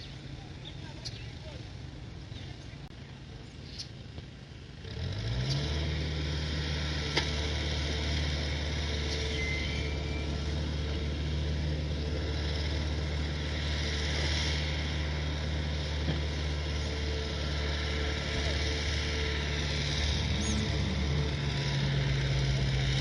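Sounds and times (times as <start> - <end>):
diesel engine revving: 0.0 - 23.0.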